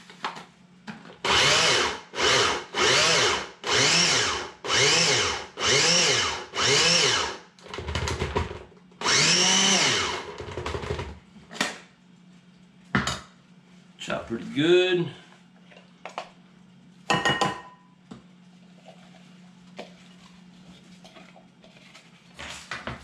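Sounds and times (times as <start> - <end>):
blender motor pulsing: 1.2 - 7.4, 9.0 - 10.4.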